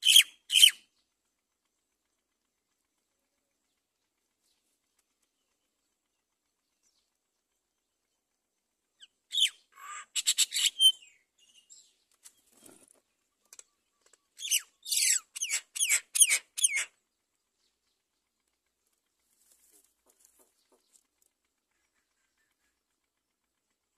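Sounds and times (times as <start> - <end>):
high-pitched bird calls: 0.0 - 0.9, 9.0 - 11.7, 13.4 - 16.9
wings fluttering: 12.1 - 17.0, 18.8 - 22.8.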